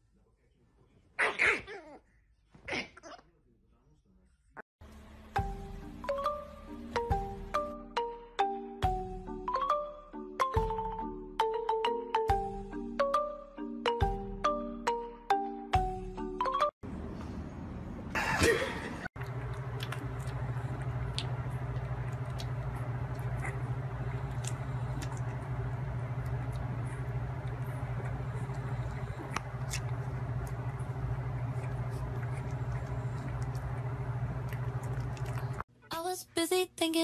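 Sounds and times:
low hum: 16.8 - 35.7
puppies suckling: 19.2 - 35.6.

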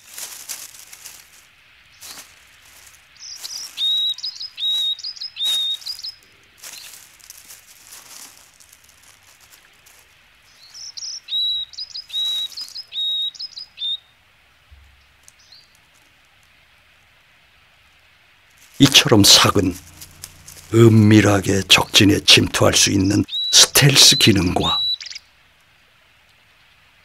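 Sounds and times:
crunching dry leaves: 0.0 - 13.5, 14.8 - 17.0, 18.4 - 24.8
songbird chirping and whistling: 3.2 - 6.2, 10.5 - 14.1, 23.2 - 25.3.

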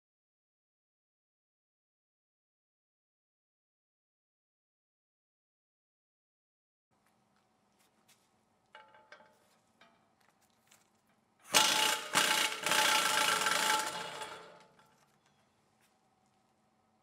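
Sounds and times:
impact wrench hammering: 11.5 - 14.8.

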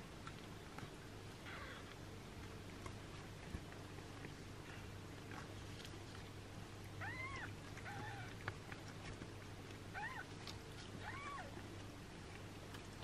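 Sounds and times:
kitten mewing: 7.0 - 8.3, 11.0 - 11.5.

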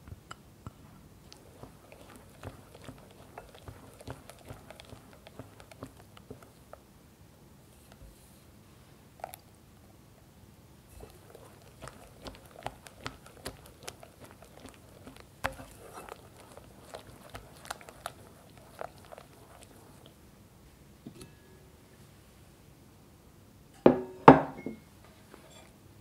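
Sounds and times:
whisk clicking against glass bowl: 1.3 - 6.5, 11.0 - 19.9.

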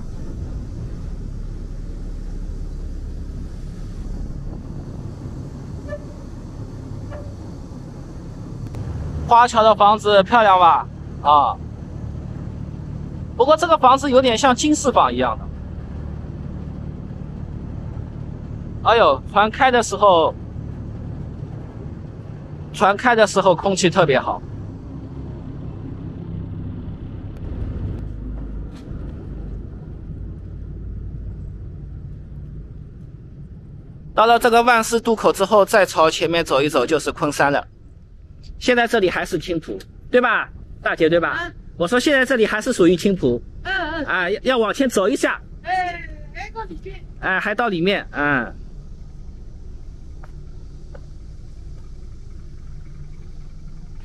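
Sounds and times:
boat engine rumbling: 0.0 - 54.0
ferry motor droning: 0.0 - 54.0.

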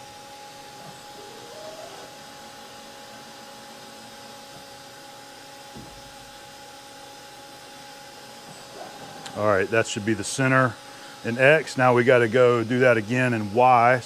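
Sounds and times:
machine hum with high tones: 0.0 - 14.0
mill axes whining: 0.0 - 14.0.

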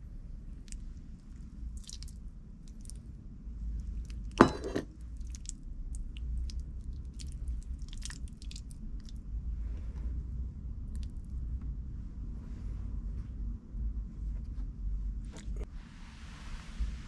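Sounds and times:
cooked fruit squelching: 0.7 - 3.0, 3.9 - 9.2.

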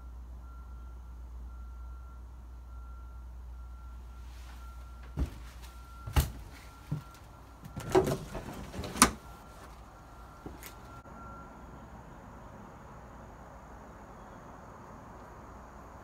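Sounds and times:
footsteps knocking: 5.1 - 8.4
faint high beeps: 9.2 - 11.9.

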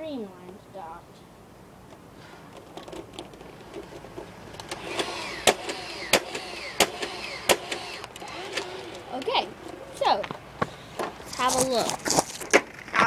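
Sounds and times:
toy blaster motor whine: 4.8 - 9.1.

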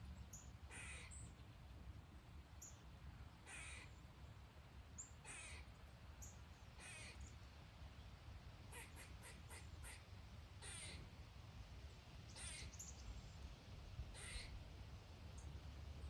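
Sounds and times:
crow cawing faintly: 0.7 - 1.2, 3.4 - 4.0, 5.2 - 5.8, 6.8 - 7.3, 8.7 - 11.1, 12.3 - 12.9, 14.1 - 14.6
small birds chirping: 12.3 - 13.1.

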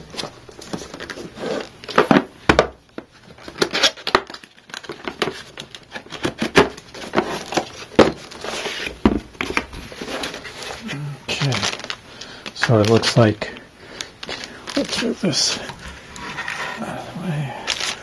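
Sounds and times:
cardboard box knocks and rustles: 6.5 - 8.3.

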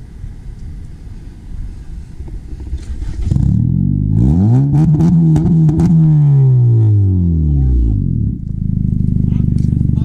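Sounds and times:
car engine revving: 2.7 - 10.0.

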